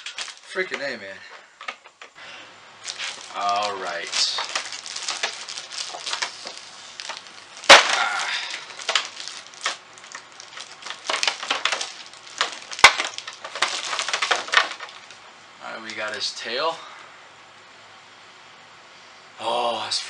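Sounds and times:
plastic bag crinkling: 0.0 - 0.9, 2.8 - 15.2, 15.8 - 16.2.

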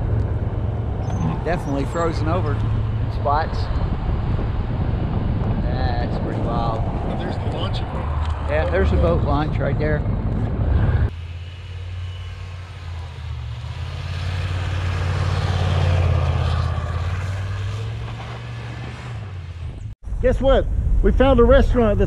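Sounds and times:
pickup truck engine revving: 10.2 - 19.8.

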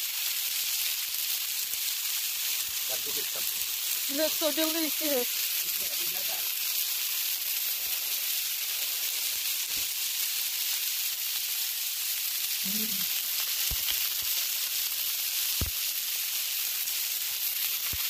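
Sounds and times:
steaks sizzling on a griddle: 0.0 - 18.0.

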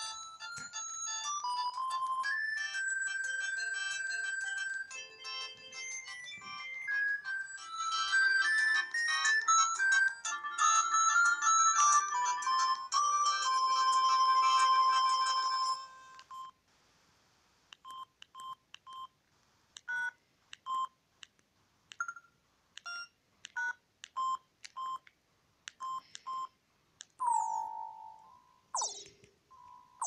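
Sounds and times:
polyphonic ringtone melody: 0.0 - 16.2, 27.2 - 30.0
short electronic keypad beeps: 27.2 - 30.0
short falling electronic tone: 28.8 - 29.1.

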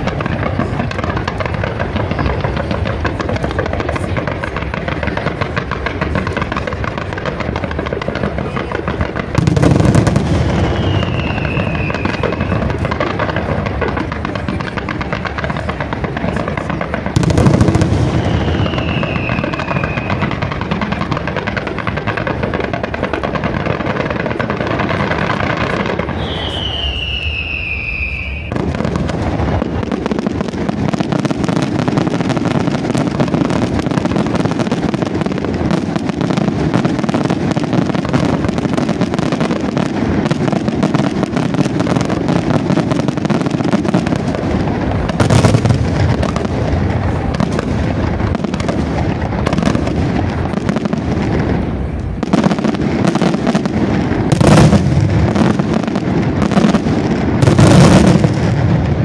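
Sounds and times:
fireworks popping and banging: 0.0 - 59.0.

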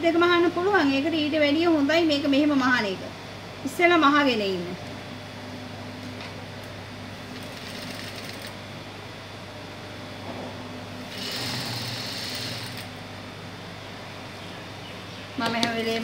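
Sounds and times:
steady low hum: 0.0 - 16.0
sewing machine stitching: 11.1 - 12.9.

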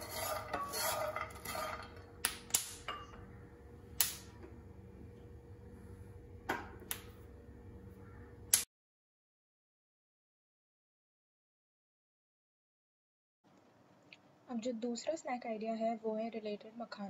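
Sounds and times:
wooden spatula scraping a pan: 0.0 - 2.0.

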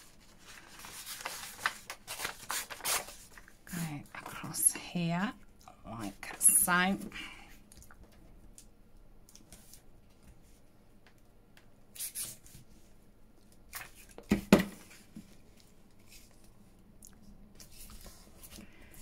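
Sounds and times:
paper rustling: 0.0 - 4.4
quick sharp paper sounds: 0.4 - 3.8, 12.0 - 12.5.

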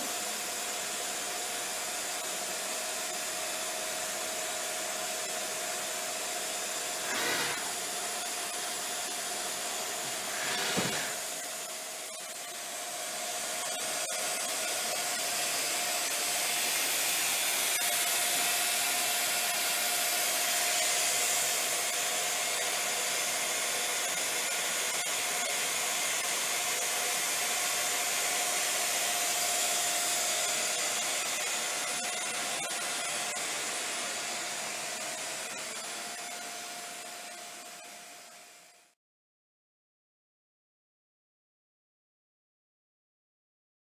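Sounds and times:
machine fan hiss: 7.0 - 12.4
short whooshes: 10.1 - 11.2.

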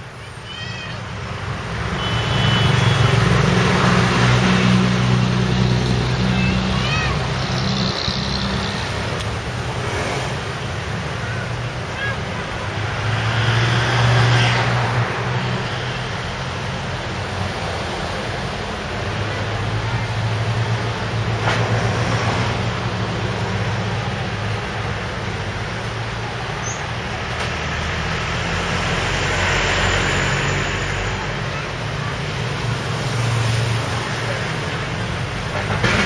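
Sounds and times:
road noise: 0.0 - 36.0
vehicle engines passing: 0.0 - 36.0.

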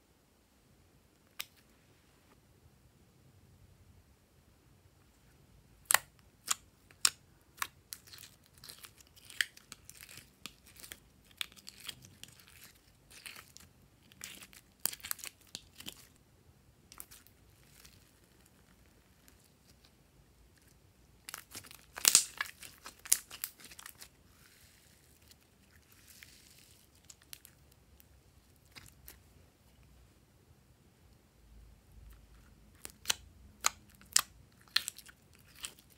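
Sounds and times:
slime clicking and crackling: 5.8 - 16.2, 21.2 - 29.2, 32.4 - 35.9.

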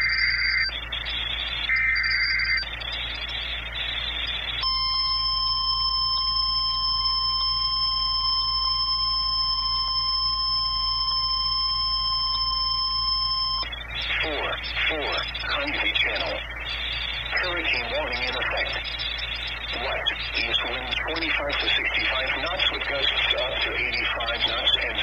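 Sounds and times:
steady warning alarm tone: 0.0 - 25.0
digital header warble: 1.7 - 25.0.

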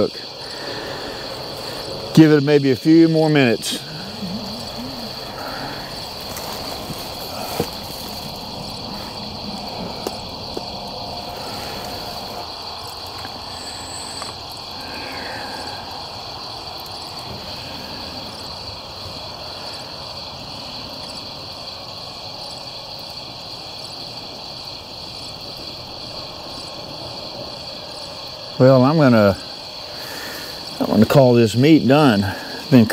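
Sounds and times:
crickets chirping: 0.0 - 32.9.

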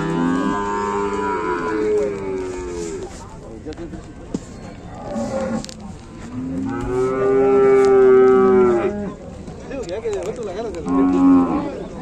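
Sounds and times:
cattle mooing: 0.0 - 2.8, 6.4 - 9.1.

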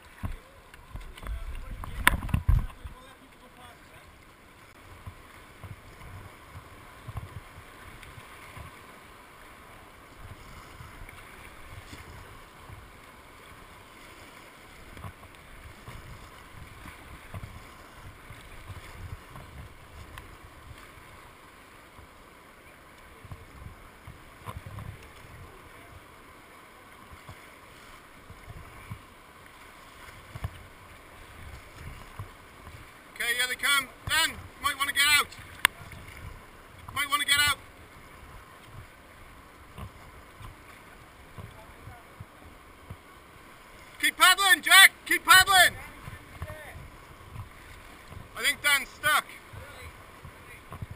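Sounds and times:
paddle splashes: 0.0 - 50.9
white water rushing: 0.0 - 50.9
low thumps of boat: 0.2 - 3.0, 14.8 - 20.8, 39.6 - 43.1, 49.5 - 50.9.

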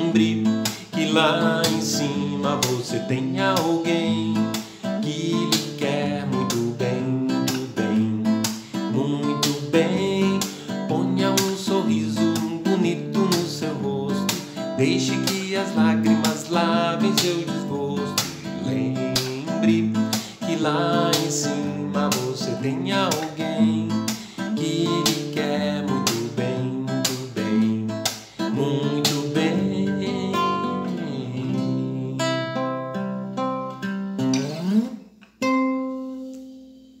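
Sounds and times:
man singing: 0.0 - 33.0
classical guitar strumming: 0.0 - 37.0.

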